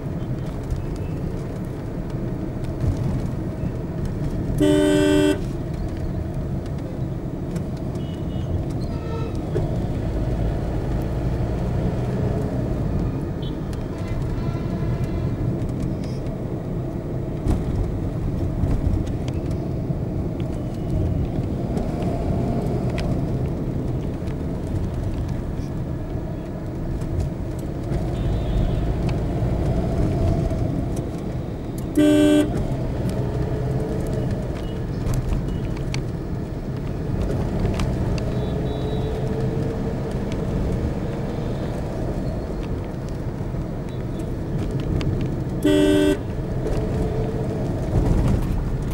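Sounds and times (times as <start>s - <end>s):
road traffic rumble: 0.0s - 48.9s
vehicle horn blast: 4.6s - 5.5s, 8.0s - 9.4s, 31.9s - 32.6s, 45.6s - 46.3s
faint horns: 31.9s - 32.6s, 45.6s - 46.3s.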